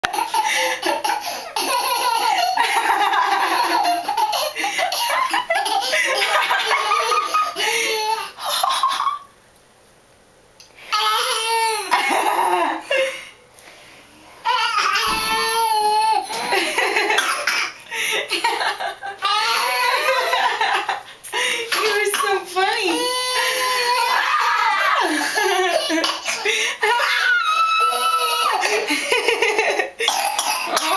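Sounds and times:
baby laughing: 0.1 - 9.3, 14.4 - 17.8, 18.4 - 20.8.

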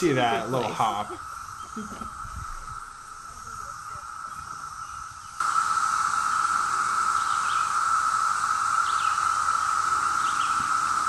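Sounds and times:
cicada chorus buzzing: 0.0 - 11.0
faint bird chirps: 6.1 - 7.9, 8.6 - 11.0.

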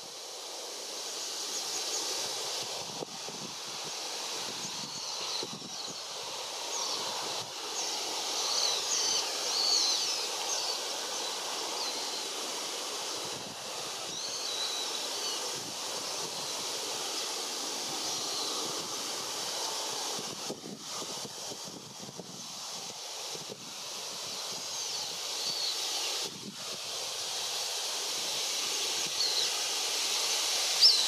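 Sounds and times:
wind rustling tree: 0.0 - 31.0
high bird calls: 7.8 - 12.3, 30.8 - 31.0.

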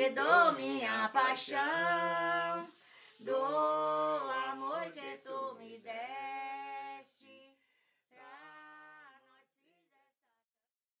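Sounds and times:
person singing unaccompanied: 0.0 - 7.5.

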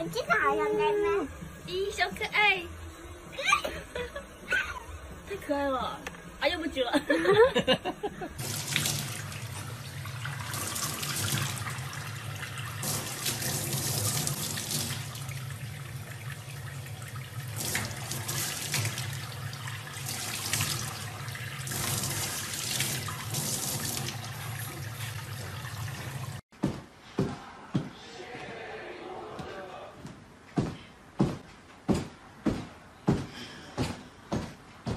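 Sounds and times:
tap water running into metal sink: 8.4 - 26.4.

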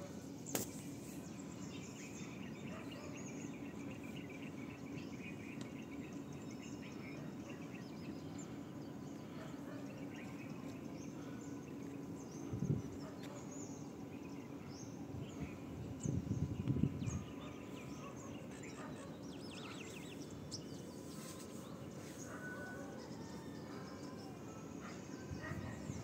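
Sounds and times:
birds chirping: 0.0 - 26.0
steady low hum: 0.0 - 26.0
sharp click: 0.5 - 0.8.

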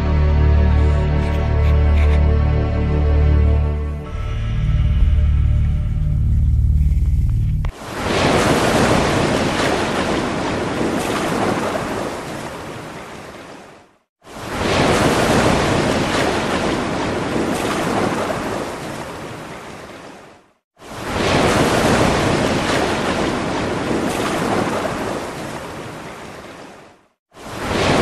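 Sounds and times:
surf waves rushing: 7.7 - 28.0.

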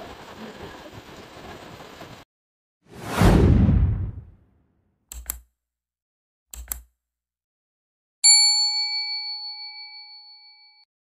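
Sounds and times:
mouse clicks: 5.1 - 5.5, 6.5 - 6.9
bell ding: 8.2 - 10.9.

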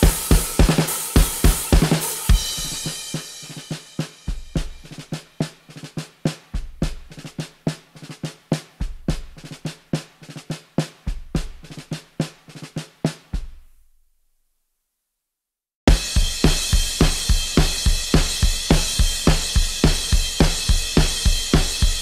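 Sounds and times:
crash cymbal ringing: 0.0 - 4.4
quick snare strokes: 0.0 - 13.6
drum kit beat: 0.0 - 13.8, 15.9 - 22.0.

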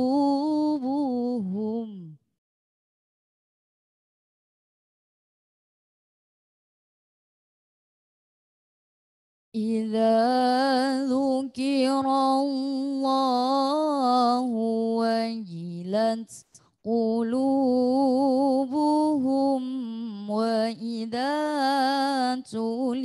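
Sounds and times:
woman reciting melodically: 0.0 - 2.2, 9.6 - 23.0.

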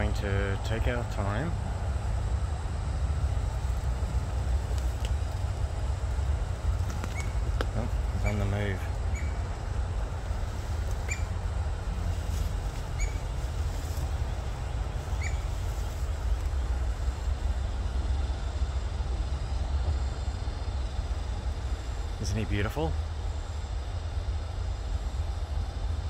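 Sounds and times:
steady low rumble: 0.0 - 26.0
short high bird chirps: 15.2 - 15.5.

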